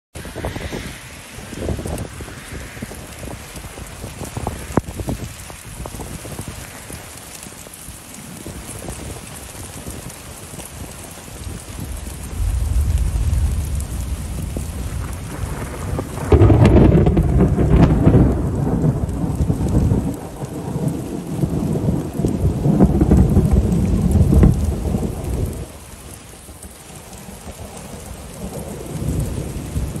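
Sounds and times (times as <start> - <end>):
heavy rain: 0.1 - 30.0
rolling thunder: 0.2 - 7.2, 8.3 - 30.0.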